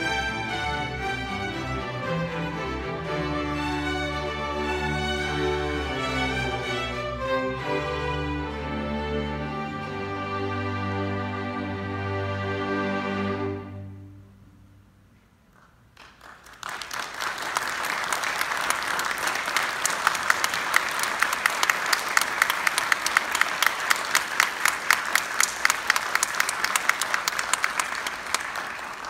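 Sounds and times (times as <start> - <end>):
audience applause: 15.8 - 29.0.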